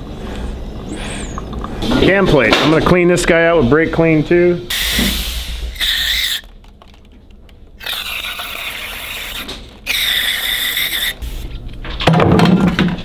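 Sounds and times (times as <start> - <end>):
aerosol spray hissing: 7.8 - 11.4.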